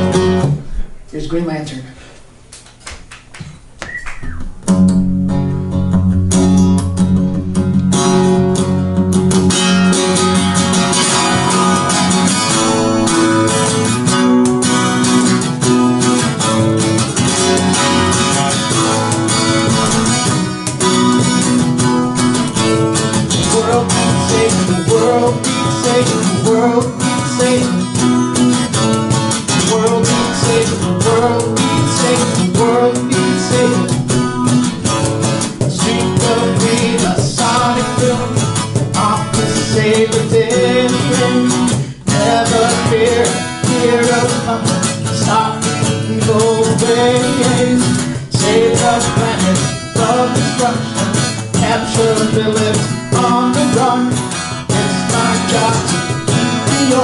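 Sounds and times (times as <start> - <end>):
acoustic guitar strumming: 0.0 - 2.5, 3.6 - 57.0
cajon hits: 2.6 - 8.6, 9.4 - 57.0
man singing: 22.1 - 57.0.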